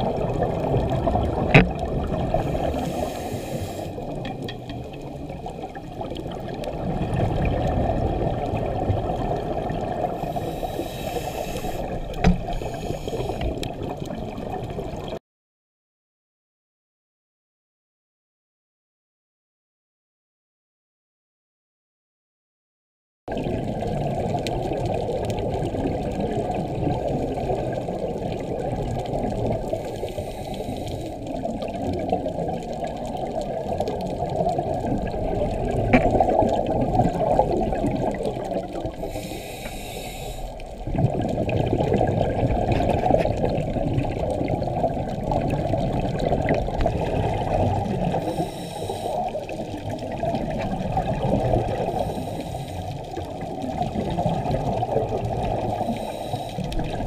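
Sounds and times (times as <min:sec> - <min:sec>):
underwater rushing and bubbling: 0:00.0 - 0:15.2, 0:23.3 - 0:57.0
diver regulator breathing hiss: 0:02.3 - 0:04.2, 0:10.1 - 0:13.7, 0:29.7 - 0:31.6, 0:38.9 - 0:40.8, 0:48.0 - 0:49.7, 0:51.8 - 0:53.2, 0:55.5 - 0:56.9.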